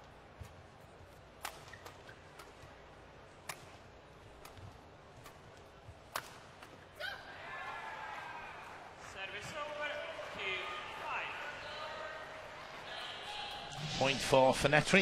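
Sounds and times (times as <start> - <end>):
rackets striking shuttlecock: 1.4 - 2.7.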